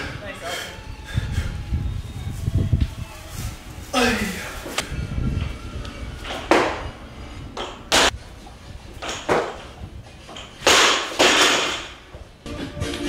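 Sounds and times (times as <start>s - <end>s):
man breathing sharply: 0.0s - 1.8s, 7.0s - 7.9s.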